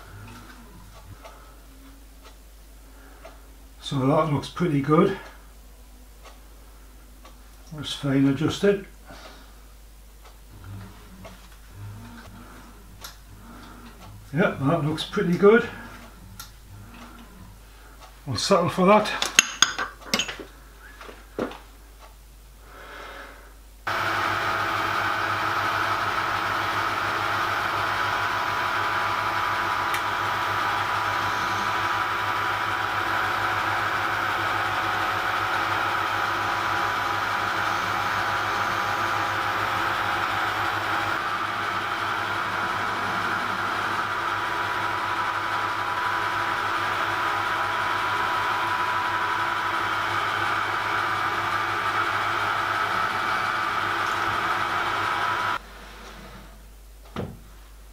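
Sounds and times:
lathe motor humming and whining: 23.9s - 56.4s.

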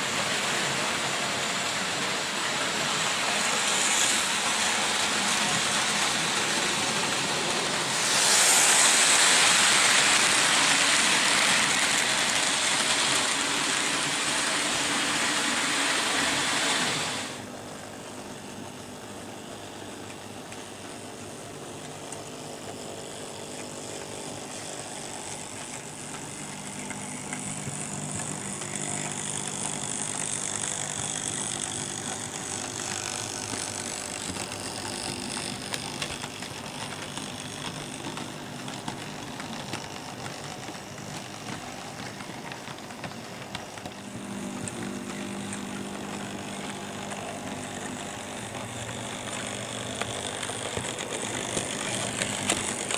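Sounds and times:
model train wheels rumbling on track: 0.0s - 17.6s, 19.4s - 52.9s
electric motor whir: 3.6s - 17.4s, 22.7s - 41.6s, 43.5s - 52.9s.

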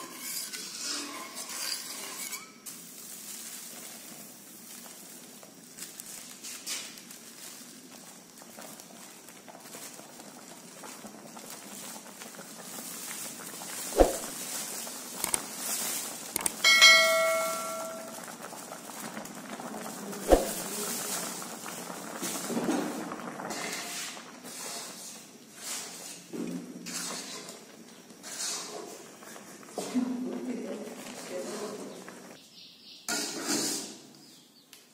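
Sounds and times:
flour pouring into water: 2.6s - 16.4s
plastic bag rustling: 2.6s - 23.5s
small clicks: 15.2s - 15.4s, 16.4s - 16.6s
ringing bell chime: 16.6s - 18.2s.

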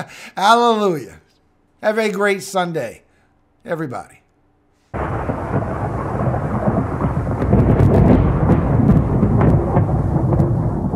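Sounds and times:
sharp crackles: 4.9s - 10.9s
deep rumbling thunder: 5.0s - 10.9s
rain: 5.0s - 10.9s.

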